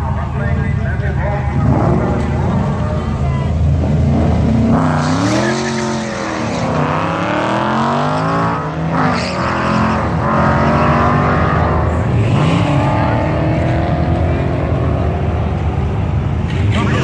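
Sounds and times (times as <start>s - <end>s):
cars accelerating hard: 1.4s - 17.0s.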